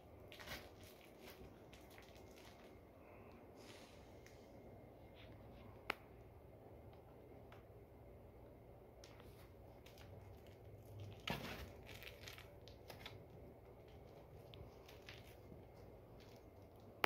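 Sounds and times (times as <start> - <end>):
toy rustling and crinkling: 0.2 - 2.9, 9.0 - 17.0.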